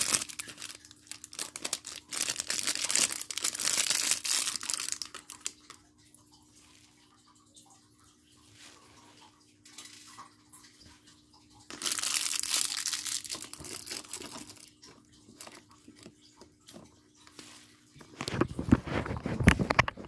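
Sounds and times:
plastic bag crinkling: 0.0s - 5.8s, 11.7s - 16.2s.

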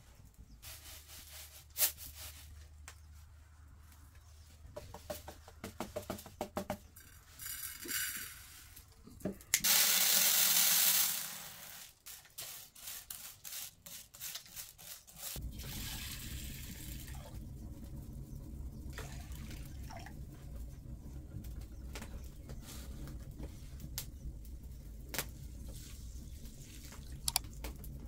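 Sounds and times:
rice pouring into metal bowl: 9.6s - 12.1s
low steady rumble: 15.4s - 28.0s.

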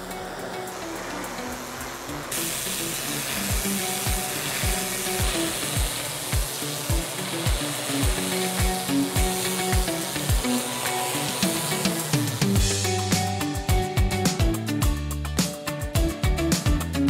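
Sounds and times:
pressure washer jet hissing: 0.0s - 13.7s
background music with thumping beat: 3.5s - 17.0s.

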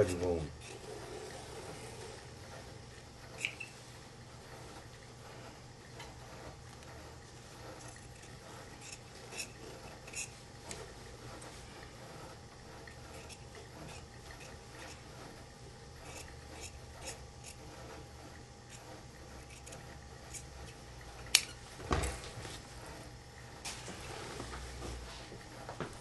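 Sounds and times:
shears snipping fabric: 6.0s - 18.1s, 18.7s - 21.6s.

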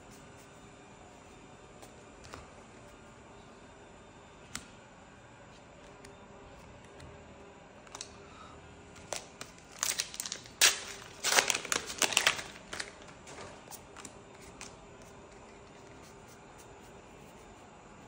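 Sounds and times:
wrapper tearing and crinkling: 9.1s - 13.5s.

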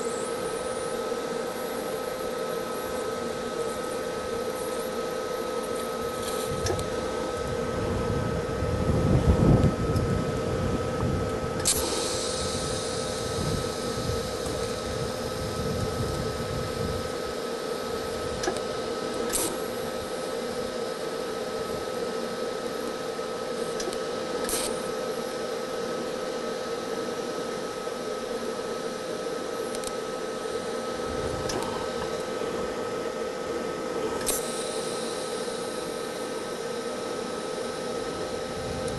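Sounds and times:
welding arc hissing: 11.6s - 25.4s, 34.2s - 38.9s.

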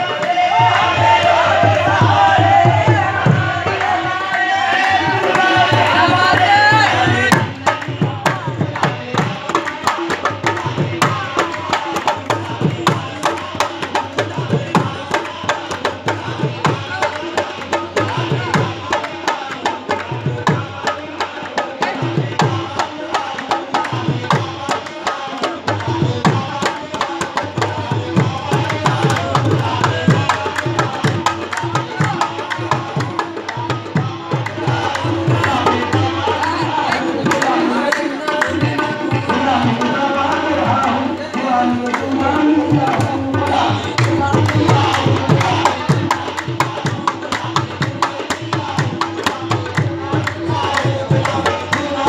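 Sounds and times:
group singing: 0.0s - 52.0s
hand drum rhythm: 0.0s - 52.0s
hands clapping: 36.9s - 38.6s.

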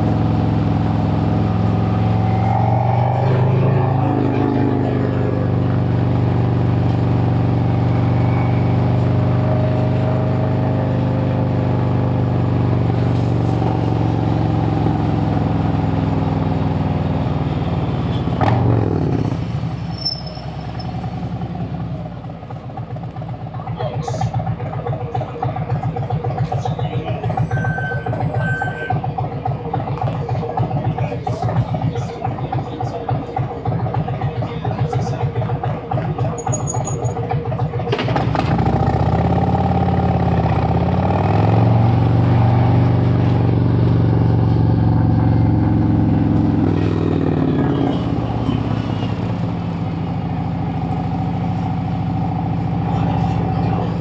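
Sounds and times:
motorcycle engine revving: 0.0s - 54.0s
motorcycle engine idling: 11.3s - 54.0s.

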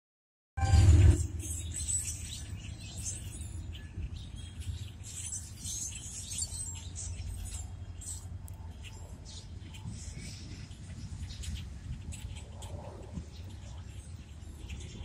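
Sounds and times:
diesel locomotive rumble: 0.6s - 2.5s
small birds chirping: 1.2s - 15.0s.

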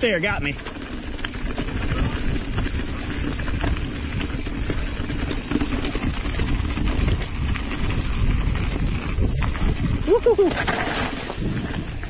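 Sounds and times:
bike rattling over bumps: 0.0s - 12.0s
bike tyres rumbling on dirt: 0.0s - 12.0s
wind on microphone: 1.5s - 12.0s.

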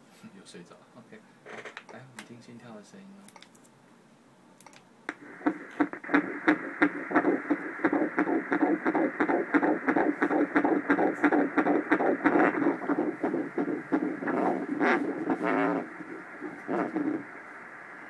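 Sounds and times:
fetal heartbeat doppler whooshing: 5.1s - 18.0s.

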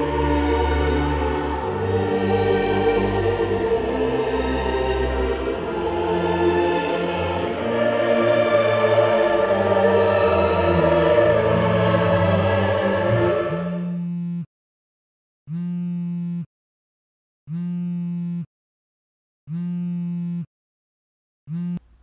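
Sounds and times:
choral classical music: 0.0s - 13.8s
smartphone vibrating buzz: 13.7s - 14.5s, 15.5s - 16.5s, 17.5s - 18.5s, 19.5s - 20.5s, 21.5s - 22.0s.

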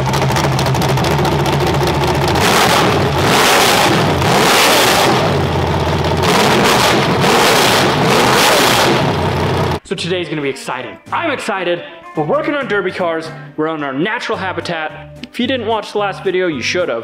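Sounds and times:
engine revving: 0.0s - 9.8s.

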